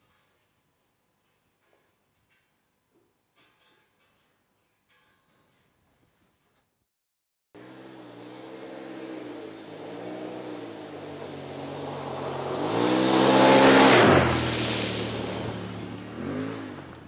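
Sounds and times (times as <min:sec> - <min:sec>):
vehicle engine revving past: 0:07.6 - 0:17.0.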